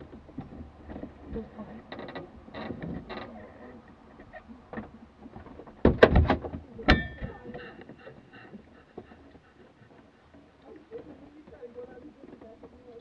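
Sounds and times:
metallic clink: 6.9 - 7.4.

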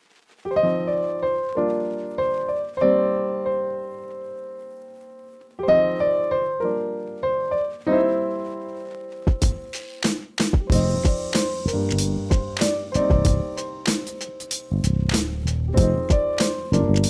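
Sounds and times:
keyboard chords: 5.2 - 17.0.

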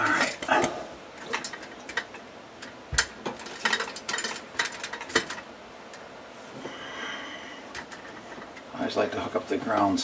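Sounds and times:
clicks and rattles handling light: 0.0 - 6.1, 7.7 - 8.7.

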